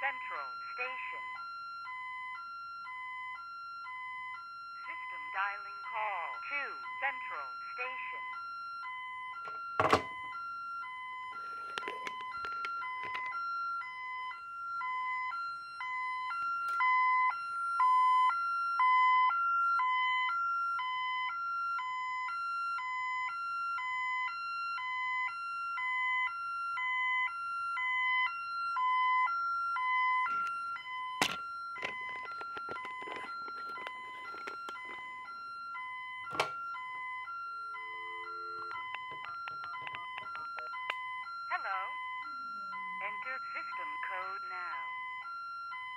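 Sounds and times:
electronic data beeps: 37.8s - 45.0s.

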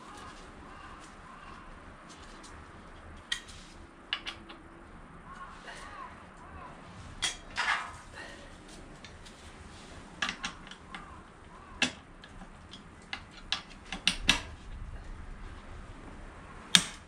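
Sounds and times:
hand tools clicking and knocking: 4.1s - 4.7s, 10.2s - 14.5s, 16.7s - 17.0s.

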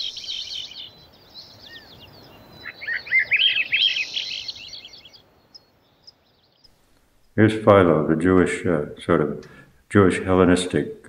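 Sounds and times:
bird chirping and trilling: 0.0s - 6.7s.

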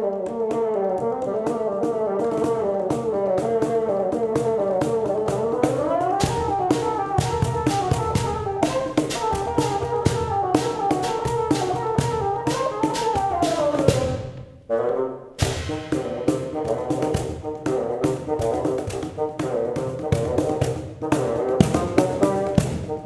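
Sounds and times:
cajon bass thumps: 0.0s - 14.5s, 15.4s - 23.0s
cajon hand strokes: 0.0s - 14.5s, 15.4s - 23.0s
bassoon melody: 0.0s - 23.0s.

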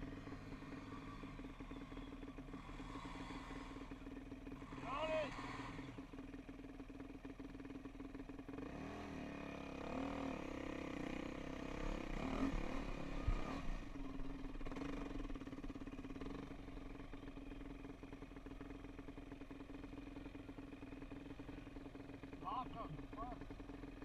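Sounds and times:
dirt bike engine revving: 0.0s - 6.2s, 8.5s - 17.2s.

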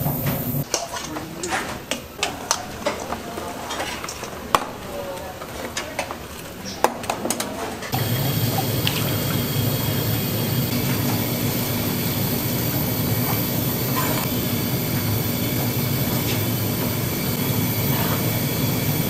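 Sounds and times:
machinery humming: 0.0s - 0.6s, 7.9s - 19.0s.

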